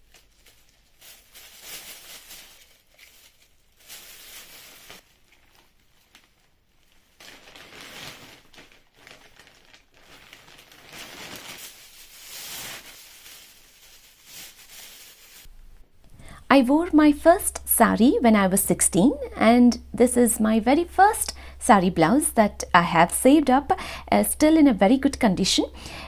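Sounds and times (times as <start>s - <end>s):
plastic bags crinkling: 0.0s - 15.5s.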